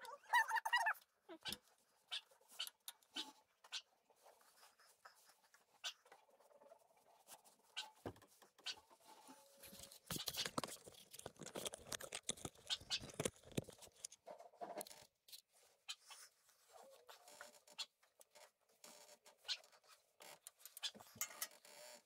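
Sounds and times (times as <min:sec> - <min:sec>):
tools clicking and scraping: 0:09.7 - 0:15.5, 0:20.3 - 0:21.6.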